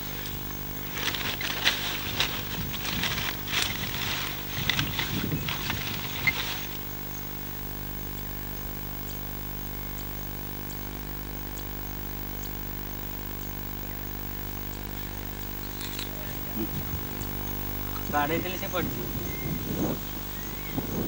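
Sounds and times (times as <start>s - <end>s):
engine idling: 0.0s - 7.0s.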